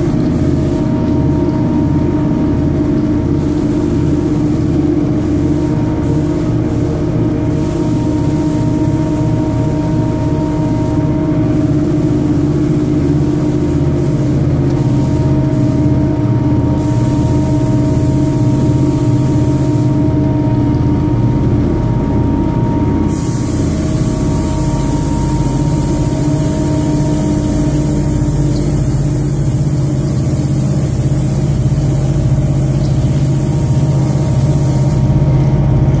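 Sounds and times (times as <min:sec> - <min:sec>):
machine motor hum: 0:00.0 - 0:36.0
loud hiss: 0:23.1 - 0:35.2.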